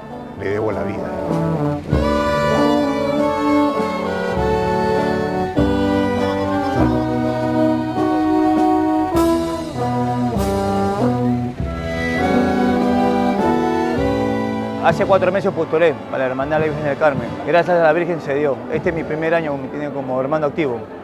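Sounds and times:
brass chords: 0.0 - 21.0
sharp percussion hits: 0.8 - 17.9.

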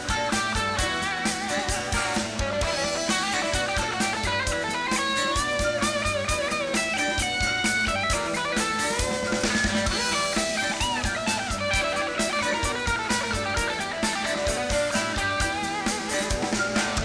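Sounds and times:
rock band playing: 0.0 - 17.0
sliding lead guitar melody: 0.0 - 17.0.

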